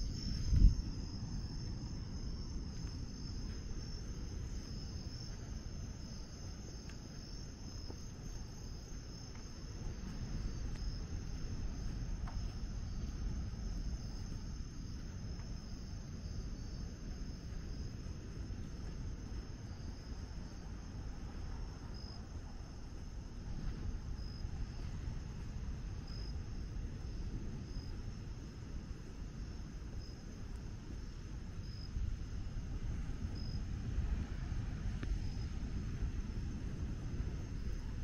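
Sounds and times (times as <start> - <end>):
low rumble: 0.0 - 27.6
night insects chorus: 0.0 - 38.0.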